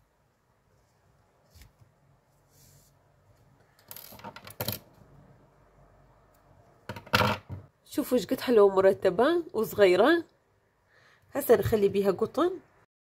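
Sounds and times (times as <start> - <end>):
faint handling sounds: 0.5 - 4.2.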